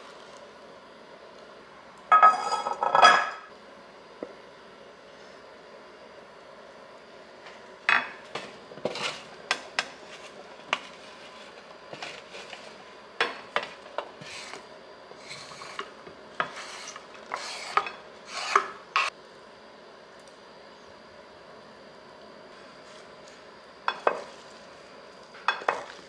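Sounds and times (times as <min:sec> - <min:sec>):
scraping on wooden cutting board: 0:08.8 - 0:12.7, 0:13.6 - 0:14.6, 0:15.2 - 0:19.1
spatula scraping ceramic bowl: 0:15.2 - 0:19.1.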